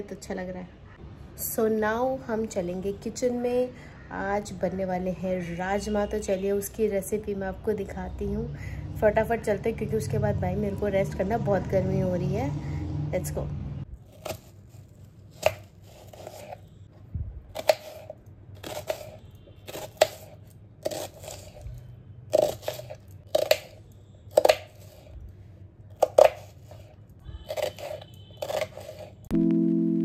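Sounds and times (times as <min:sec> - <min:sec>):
knife slicing onion: 0:14.1 - 0:16.7, 0:17.5 - 0:25.2, 0:25.9 - 0:29.2
music: 0:29.3 - 0:30.0.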